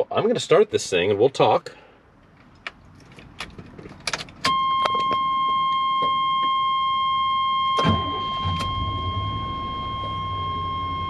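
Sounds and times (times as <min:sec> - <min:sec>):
steady warning tone: 0:04.5 - 0:11.0
engine cranking and idling: 0:07.8 - 0:10.6.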